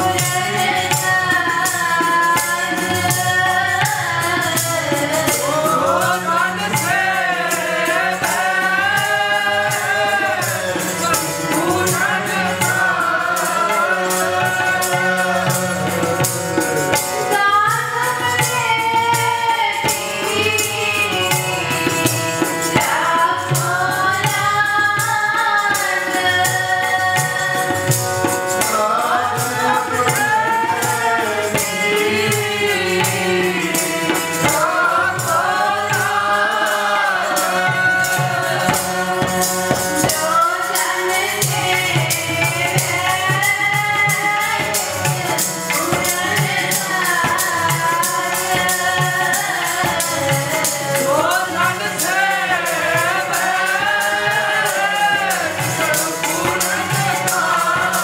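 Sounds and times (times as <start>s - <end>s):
woman singing a hymn: 0.0s - 10.4s, 17.3s - 21.7s, 22.8s - 27.9s
group singing: 0.0s - 58.0s
harmonium chords: 0.0s - 58.0s
tabla rhythm: 0.0s - 58.0s.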